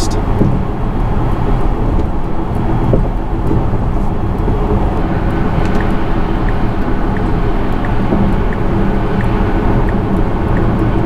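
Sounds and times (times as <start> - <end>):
road and tyre noise in car: 0.0 - 11.0
turn signal ticking: 0.0 - 11.0.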